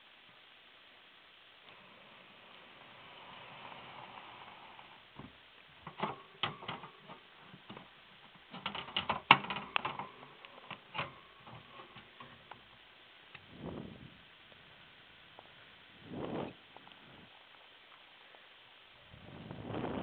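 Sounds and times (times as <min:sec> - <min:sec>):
clicks on wire cage bars: 0:05.8 - 0:12.6.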